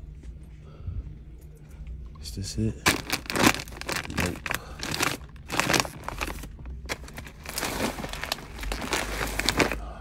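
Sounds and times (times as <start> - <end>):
plastic bag crinkling: 2.8 - 9.8.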